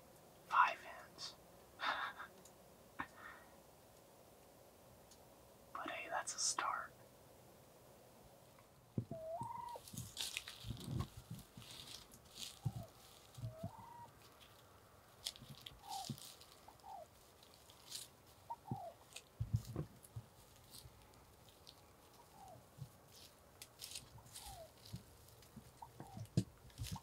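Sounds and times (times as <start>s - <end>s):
turkeys clucking softly: 8.5s - 27.0s
rustling in grass: 9.1s - 27.0s.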